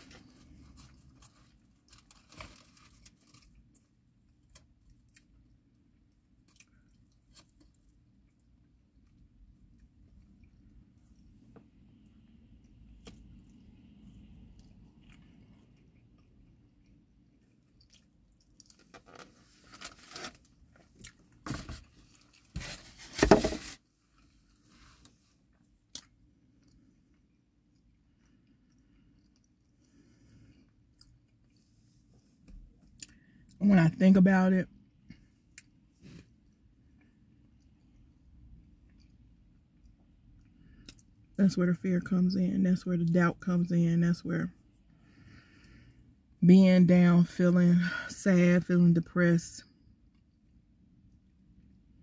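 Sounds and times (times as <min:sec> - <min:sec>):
person quietly chewing food: 0:00.0 - 0:18.9, 0:20.5 - 0:21.4, 0:24.0 - 0:33.6, 0:34.9 - 0:41.4.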